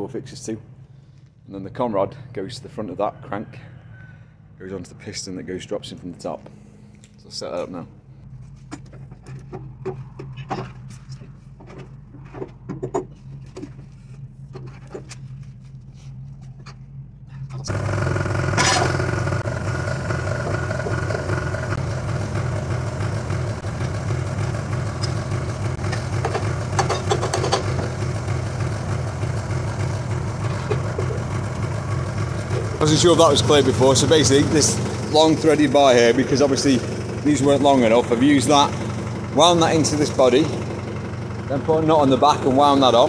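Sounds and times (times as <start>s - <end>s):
low engine hum: 4.1s - 43.0s
engine idling close by: 17.5s - 43.0s.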